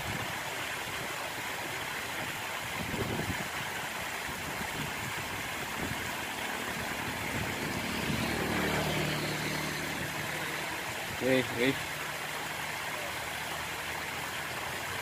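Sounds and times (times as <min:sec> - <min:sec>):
small engine idling: 0:06.4 - 0:12.8.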